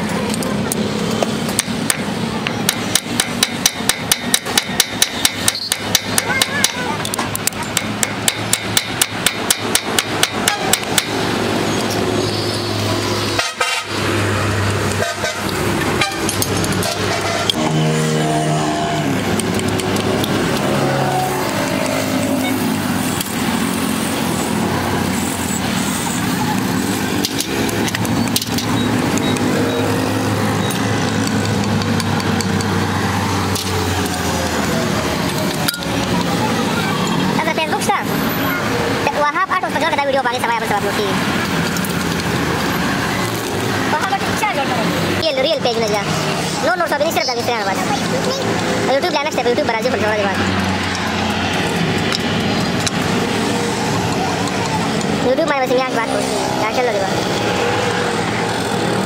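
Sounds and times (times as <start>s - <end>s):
engine humming: 0.0s - 59.0s
metallic clicks of hand tools: 0.3s - 11.2s, 19.3s - 20.7s, 27.2s - 29.5s, 30.6s - 32.8s
hammer striking steel: 1.5s - 11.2s.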